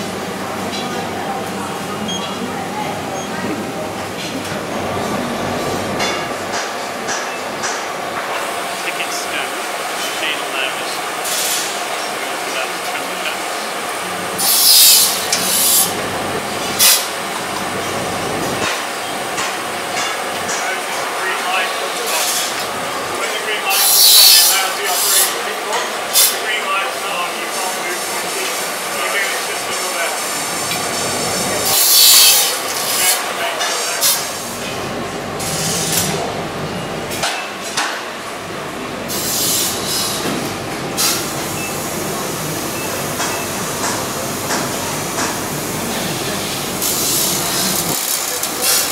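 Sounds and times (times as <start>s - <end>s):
factory machinery noise: 0.0s - 48.9s
cutting saw hiss: 14.4s - 16.0s, 23.6s - 25.4s.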